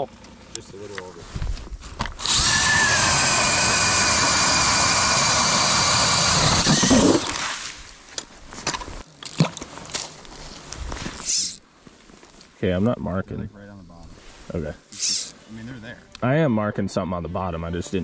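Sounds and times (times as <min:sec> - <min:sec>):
drill motor whine: 0:02.2 - 0:07.3
auger blade cutting ice: 0:02.2 - 0:07.5.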